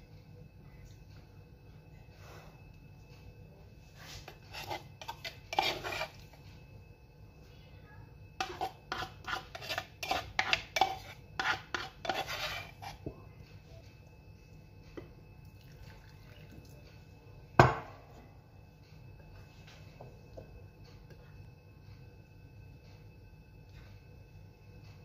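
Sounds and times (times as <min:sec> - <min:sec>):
spoon scraping small bowls: 0:04.0 - 0:06.4, 0:08.4 - 0:13.1.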